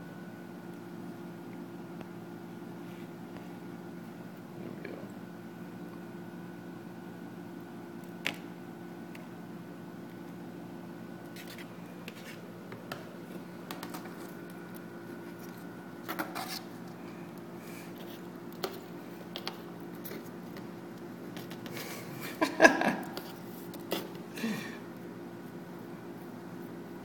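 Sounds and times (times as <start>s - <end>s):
stick tapping and scraping cardboard: 11.3s - 14.4s.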